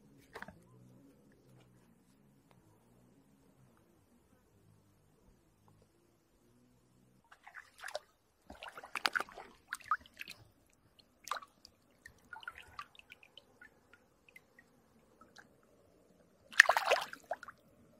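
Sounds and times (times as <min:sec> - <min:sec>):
water splashing: 0:07.3 - 0:14.6, 0:16.5 - 0:17.6
water dripping and trickling: 0:08.5 - 0:15.5.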